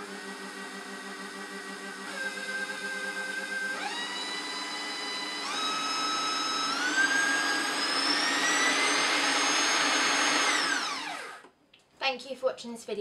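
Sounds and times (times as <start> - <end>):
stand mixer motor whine: 0.0 - 11.5.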